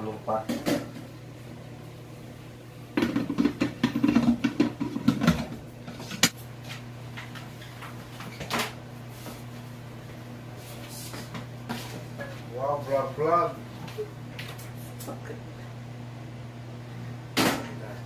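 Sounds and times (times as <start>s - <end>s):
steady low hum: 0.0s - 18.0s
pots and metal bowl clattering: 3.0s - 6.4s.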